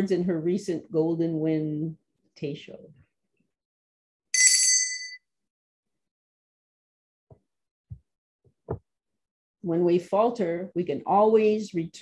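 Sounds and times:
high-pitched bell-like chime: 0:04.4 - 0:05.2.

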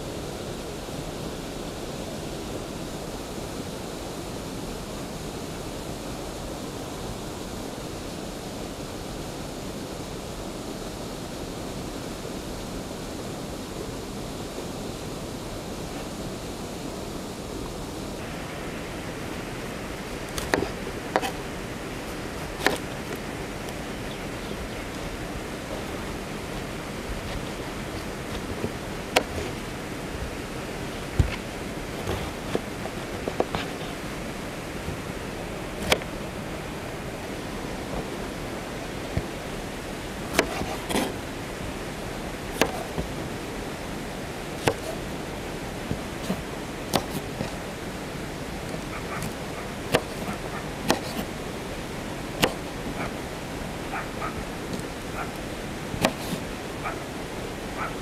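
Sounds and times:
steady hiss: 0:00.0 - 0:58.0.

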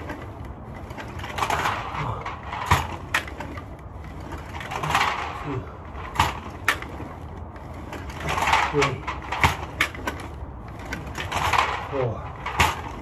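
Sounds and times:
low rolling rumble: 0:00.0 - 0:13.0.

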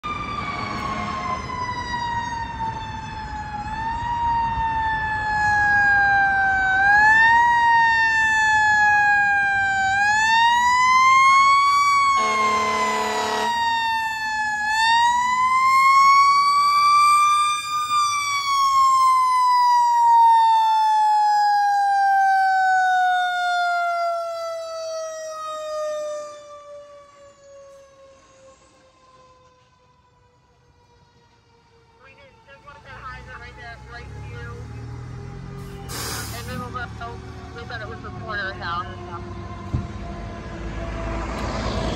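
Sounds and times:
fire engine siren wailing: 0:00.0 - 0:41.9
horn blast: 0:12.2 - 0:13.7.

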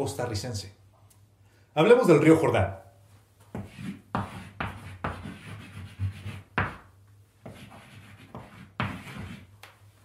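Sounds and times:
chalk scraping on chalkboard: 0:03.6 - 0:06.8, 0:07.4 - 0:09.5.

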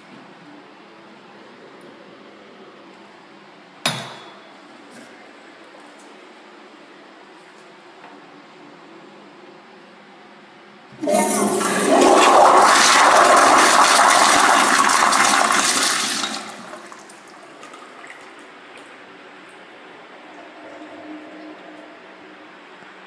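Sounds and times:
toilet flush water rushing: 0:10.9 - 0:18.4.

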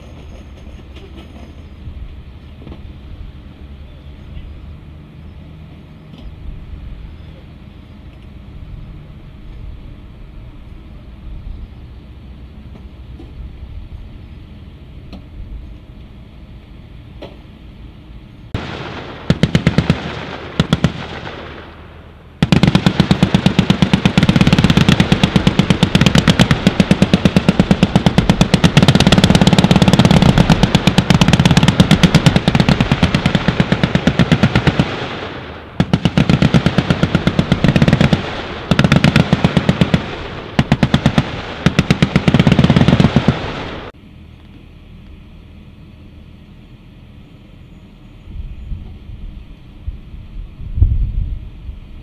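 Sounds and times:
machine gun automatic fire: 0:18.6 - 0:21.8, 0:22.4 - 0:43.9.

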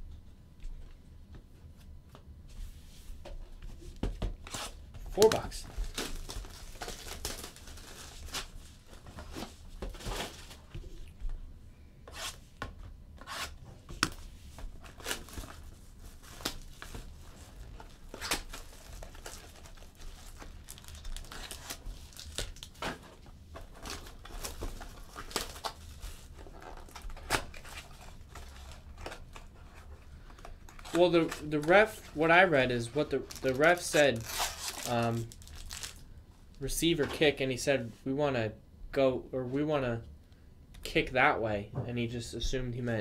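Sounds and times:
plastic shrink-wrap crinkling and tearing: 0:05.2 - 0:08.9, 0:14.8 - 0:22.8, 0:23.7 - 0:29.5, 0:33.0 - 0:36.0.

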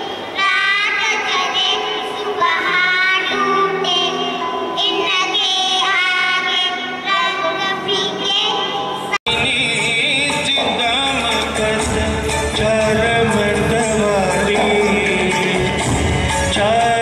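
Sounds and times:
girls singing into microphones: 0:00.3 - 0:09.2.

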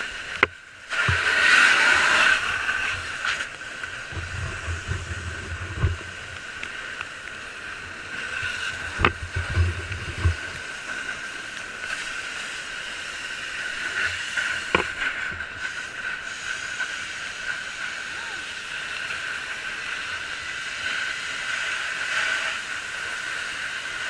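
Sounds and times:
fire hose spraying water: 0:00.0 - 0:24.0
low bumps: 0:02.4 - 0:11.2.

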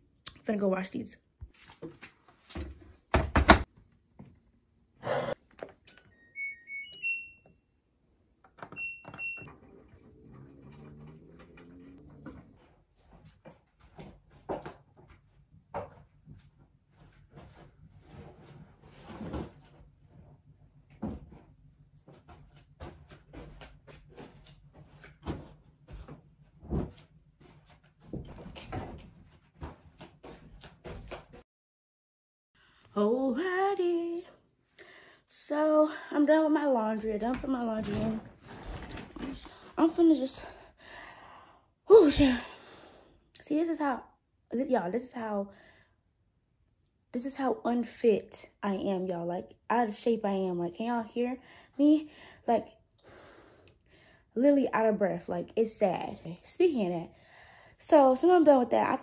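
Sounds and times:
washing machine beeps: 0:05.8 - 0:07.7, 0:08.6 - 0:09.8
laundry thumps and rustles: 0:20.9 - 0:31.4, 0:37.2 - 0:39.6.

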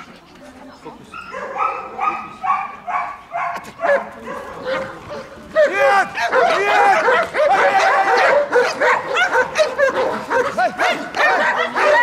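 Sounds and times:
dogs barking and yelping: 0:01.2 - 0:12.0.

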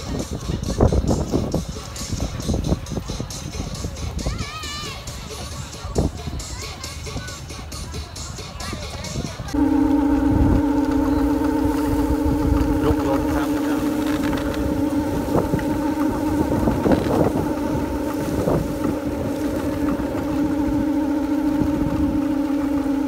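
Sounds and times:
bamboo windmills droning: 0:09.3 - 0:23.0.

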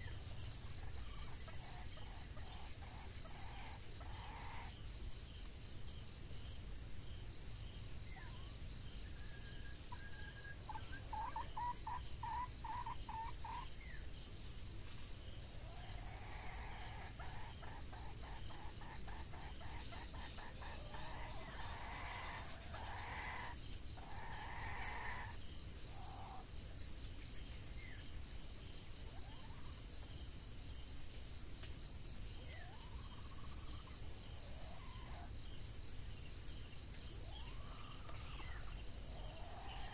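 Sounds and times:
high insect drone: 0:00.0 - 0:39.9
junglefowl clucking: 0:00.7 - 0:04.7, 0:09.9 - 0:13.7, 0:15.6 - 0:26.4.

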